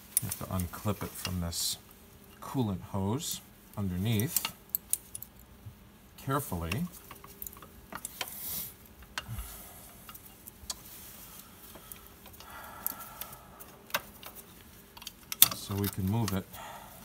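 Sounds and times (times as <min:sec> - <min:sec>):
short rustle: 0:06.3 - 0:16.7
light clicks and knocks: 0:11.6 - 0:16.5.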